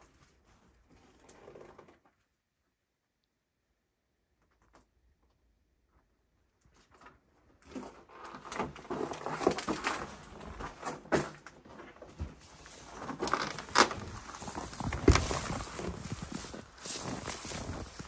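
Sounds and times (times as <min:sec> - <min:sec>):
knocks and scuffs of handling: 0:09.6 - 0:18.0.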